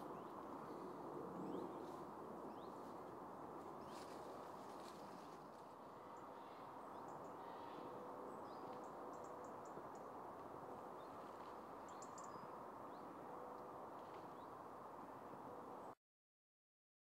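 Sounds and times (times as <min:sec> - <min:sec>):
small birds chirping: 0:11.0 - 0:13.1.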